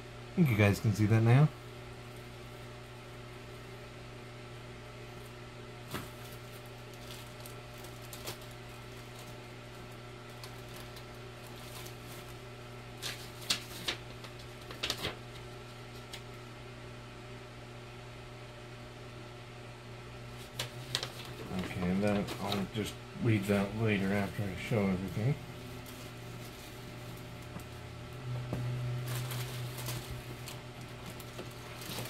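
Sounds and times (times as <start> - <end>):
steady background hum: 0.0 - 32.0
paper and packaging rustling: 5.9 - 9.4, 10.3 - 15.4, 20.4 - 22.9, 23.9 - 27.7, 28.9 - 32.0.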